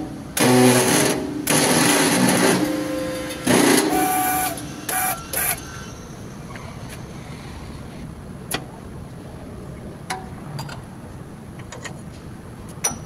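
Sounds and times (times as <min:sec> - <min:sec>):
metal creaks and squeals in press: 0:01.7 - 0:08.0.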